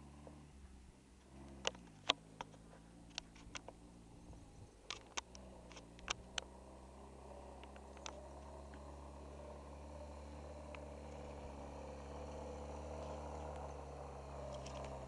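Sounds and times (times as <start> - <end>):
distant jeep engine running: 0.0 - 15.0
sharp clicks near microphone: 4.8 - 6.5.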